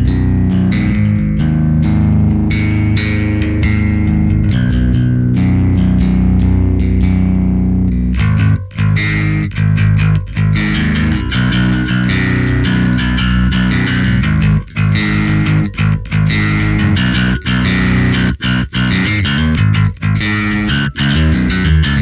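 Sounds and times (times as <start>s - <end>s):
overdriven electric bass: 0.0s - 22.0s.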